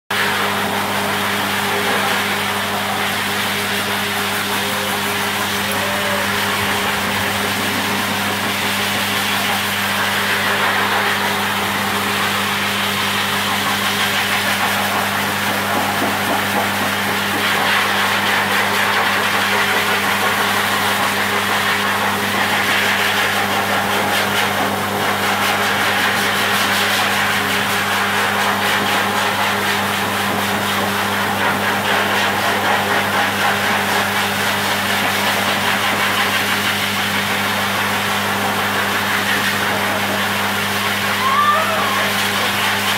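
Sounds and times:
motor running with airy rush: 0.1 - 42.9.

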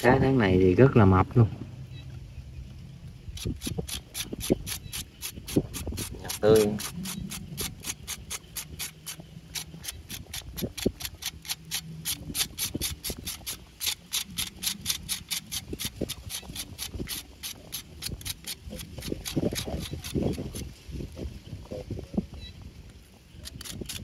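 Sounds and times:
knife scraping fish skin: 3.4 - 20.7, 23.4 - 24.0.

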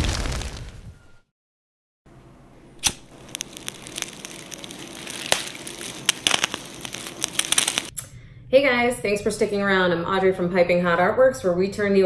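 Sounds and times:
fire crackling with pops: 2.8 - 7.9.

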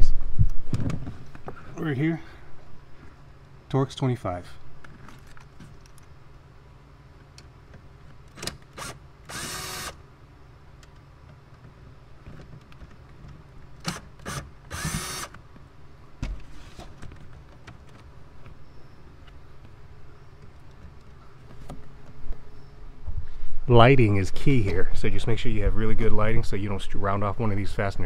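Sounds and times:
cordless drill whirring: 8.7 - 10.0, 14.2 - 15.4.

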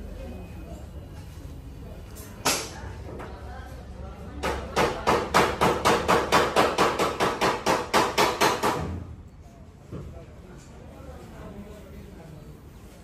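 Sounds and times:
hammer beating metal panel: 4.4 - 9.1.

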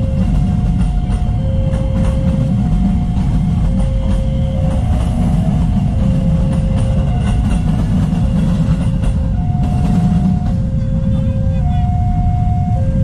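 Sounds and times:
electric train rumbling: 0.0 - 13.0
level crossing two-tone alarm: 0.0 - 13.0
motorcycles idling: 0.0 - 13.0.

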